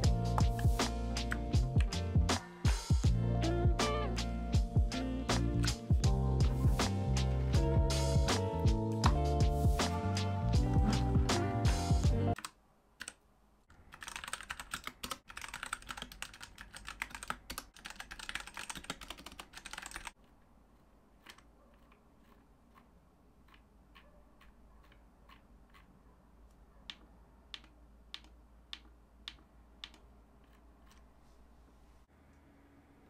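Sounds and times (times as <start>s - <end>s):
mechanical keyboard fast typing: 13.9s - 20.2s.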